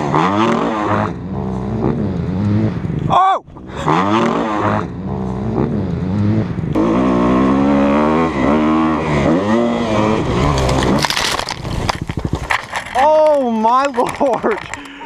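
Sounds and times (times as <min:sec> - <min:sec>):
dirt bike engine revving: 0:00.0 - 0:03.0, 0:03.6 - 0:13.0
crash knocks and scraping: 0:10.3 - 0:13.4.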